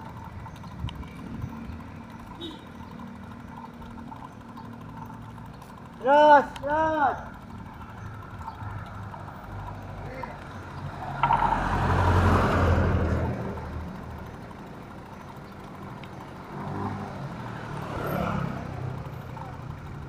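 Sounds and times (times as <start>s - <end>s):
traffic hum: 0.0s - 20.0s
vehicle passing close by: 10.9s - 14.0s, 16.5s - 19.0s.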